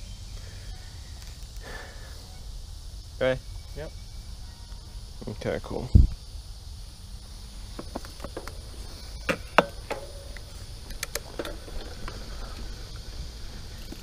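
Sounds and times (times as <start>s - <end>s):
bike tyres rumbling on dirt: 6.8s - 14.0s
bike clicks and knocks: 7.7s - 12.8s.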